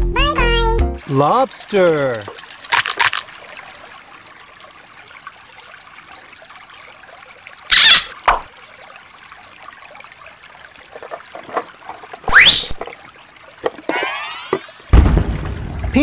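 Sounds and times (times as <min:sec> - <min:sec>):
water trickling over stones: 0:01.0 - 0:16.0.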